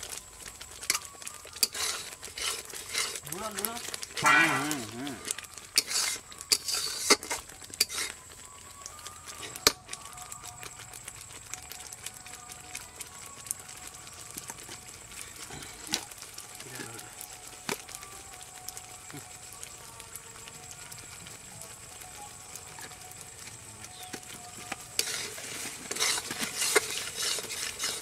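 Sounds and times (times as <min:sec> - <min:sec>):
gravy simmering with low sizzle: 0:00.0 - 0:28.0
metal ladle scraping a pan: 0:00.8 - 0:08.3, 0:25.0 - 0:28.0.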